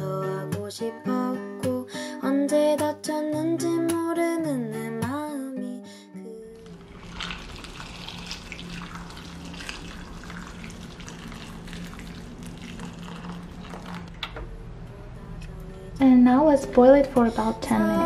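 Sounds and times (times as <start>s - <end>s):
water pouring and splashing: 6.6s - 14.2s.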